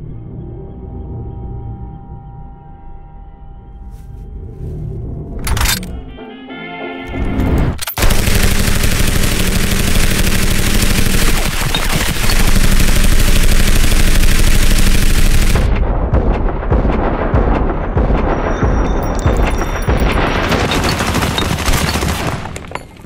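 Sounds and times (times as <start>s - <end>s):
scattered clicks: 7.4s - 15.7s
submachine gun automatic fire: 7.8s - 15.8s, 20.1s - 22.7s.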